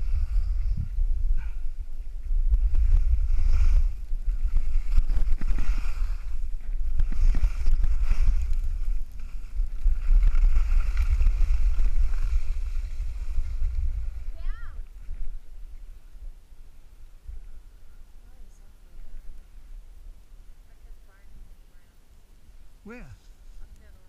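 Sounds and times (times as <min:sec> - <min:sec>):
skis scraping over snow: 0:00.0 - 0:15.8
wind buffeting microphone: 0:00.0 - 0:21.6.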